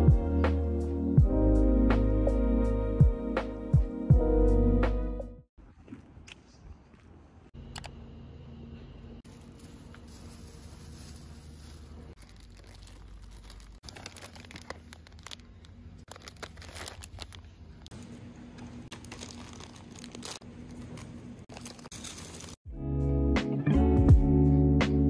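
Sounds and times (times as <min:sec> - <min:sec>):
packaging crinkling: 0:09.3 - 0:17.9, 0:18.9 - 0:22.6.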